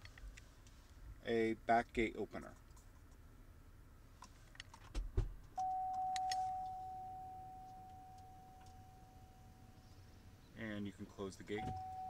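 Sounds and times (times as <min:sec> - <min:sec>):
steady warning tone: 0:05.6 - 0:10.4, 0:11.5 - 0:12.0.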